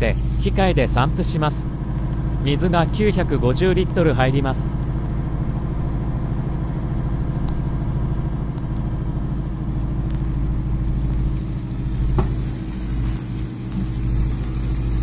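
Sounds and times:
engine running: 0.0 - 15.0
water rushing into plastic tank: 11.2 - 15.0.

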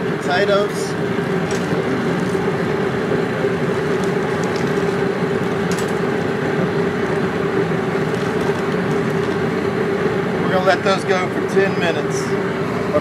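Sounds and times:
propane burner roaring: 0.0 - 13.0
water boiling in pot: 0.1 - 10.4.

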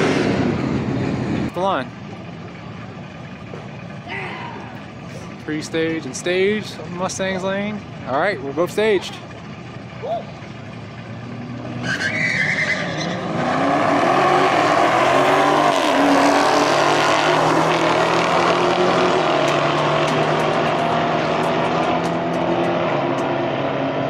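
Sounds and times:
drag racing cars accelerating: 0.0 - 2.3, 8.5 - 24.0
tire squeal: 11.6 - 16.4.

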